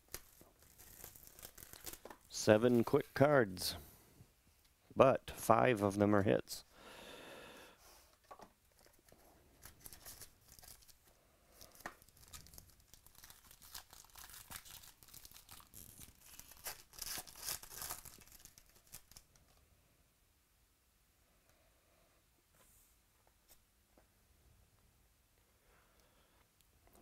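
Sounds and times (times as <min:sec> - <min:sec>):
packaging being torn and crinkled: 0:00.0 - 0:02.3, 0:08.8 - 0:11.0, 0:11.6 - 0:19.6.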